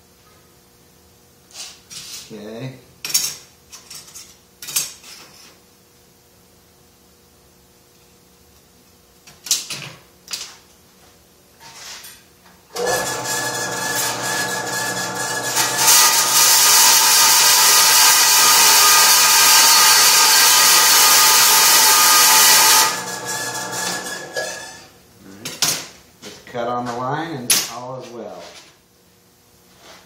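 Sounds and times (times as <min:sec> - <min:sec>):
bandsaw motor running: 0:12.8 - 0:24.8
bandsaw blade cutting steel: 0:12.8 - 0:24.9.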